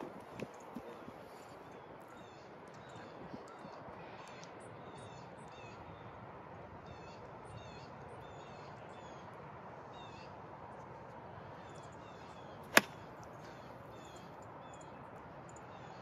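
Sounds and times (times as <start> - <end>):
birds chirping: 0.0 - 16.0
golf club striking ball: 12.7 - 13.0.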